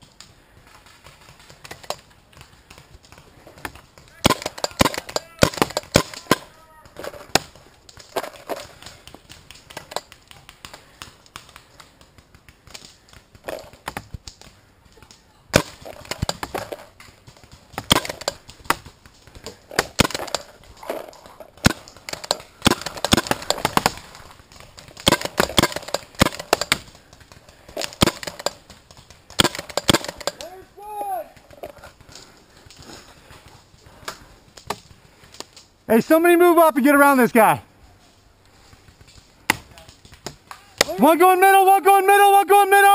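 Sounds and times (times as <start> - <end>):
paintball markers firing: 0.7 - 30.5.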